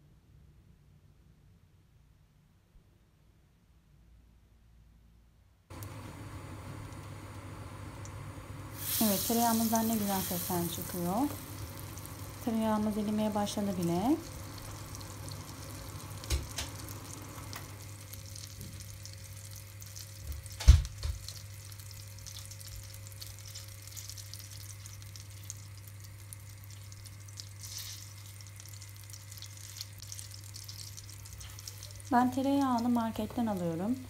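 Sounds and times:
butter sizzling in a pan: 5.8s - 34.0s.

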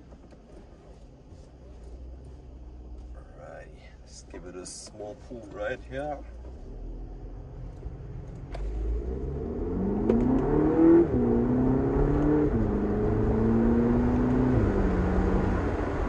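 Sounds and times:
car engine accelerating hard: 6.4s - 16.0s.

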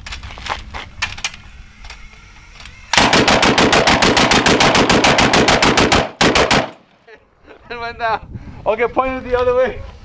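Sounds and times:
rapid loud gunshots: 3.0s - 6.8s.

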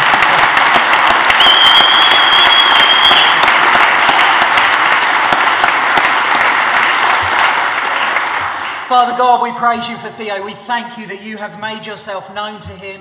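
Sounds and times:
congregation applauding: 0.0s - 9.5s
high whistle: 1.3s - 3.4s.

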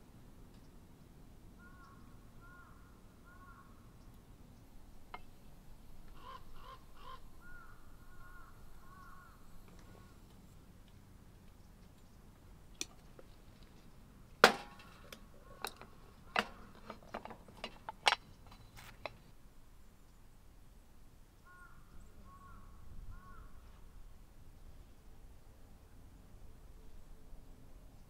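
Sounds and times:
bird calling: 1.6s - 10.6s, 14.7s - 17.0s, 21.4s - 23.9s.

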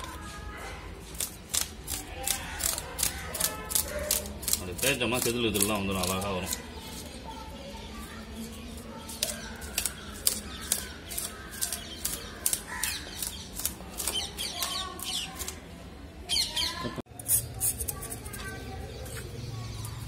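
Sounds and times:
knife scraping fish scales: 0.0s - 7.2s, 8.6s - 15.6s, 17.1s - 18.6s.

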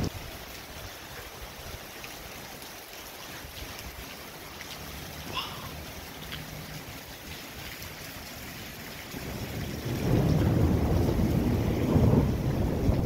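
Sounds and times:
faint hiss of rain: 0.0s - 13.0s
thunder rumbling: 8.7s - 13.0s.

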